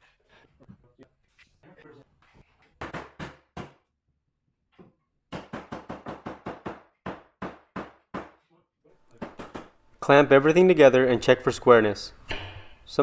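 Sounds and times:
sharp knocks on wood: 5.3 - 8.4.

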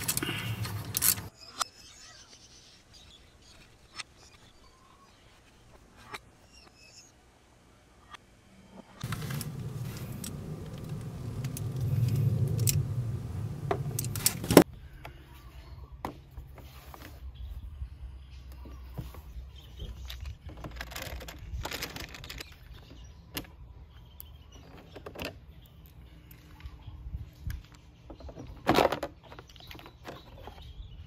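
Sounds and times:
hands rustling plastic panels: 0.0 - 1.3, 9.0 - 14.6
loud low rumble: 9.0 - 14.6.

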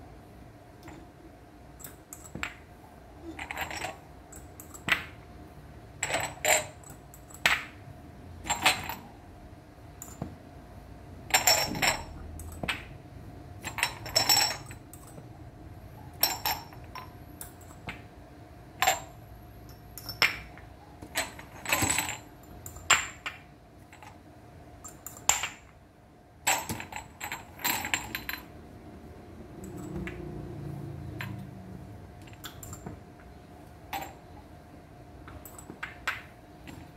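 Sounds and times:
faint steady hum: 0.0 - 36.9
glass cups clinking: 11.3 - 12.2, 13.7 - 15.2, 16.2 - 17.1, 19.7 - 20.6.

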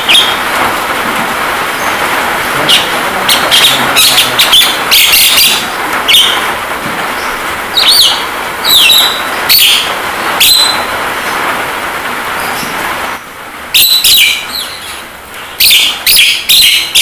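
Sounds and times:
bird harsh chirps: 0.0 - 0.5, 1.7 - 6.5, 7.1 - 10.9, 13.8 - 17.0
rain hiss: 0.0 - 17.0.

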